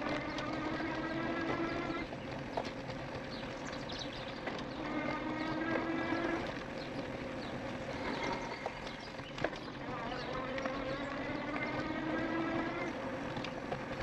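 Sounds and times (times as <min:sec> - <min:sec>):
electric motor whining: 0:00.0 - 0:03.4, 0:04.2 - 0:14.0
tyres rolling on dirt: 0:00.0 - 0:14.0.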